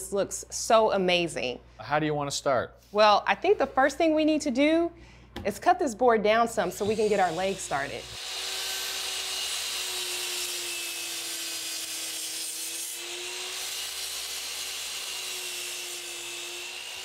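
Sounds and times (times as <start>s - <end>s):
miter saw cutting wood: 6.6s - 17.0s.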